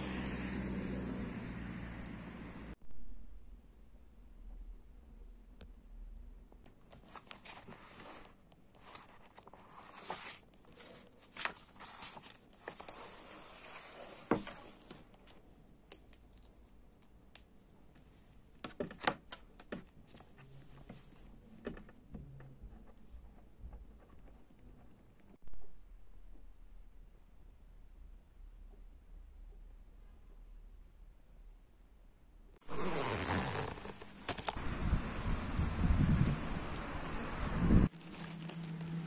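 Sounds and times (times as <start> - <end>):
paper rustling and crinkling: 6.8 - 15.4, 32.7 - 39.0.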